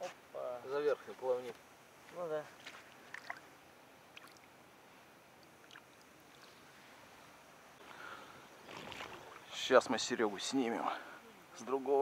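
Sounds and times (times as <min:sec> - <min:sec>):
faint lapping water: 0:02.2 - 0:11.6.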